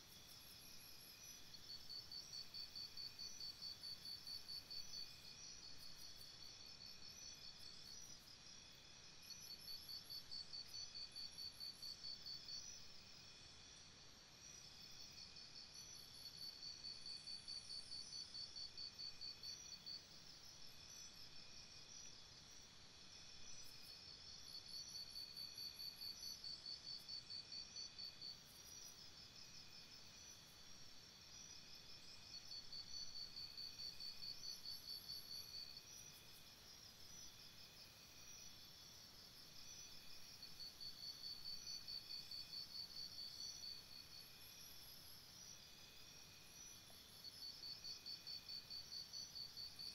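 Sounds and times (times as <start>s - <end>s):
faint cricket chirping: 0.0s - 49.9s
pulsing high insect chirp: 14.4s - 49.9s.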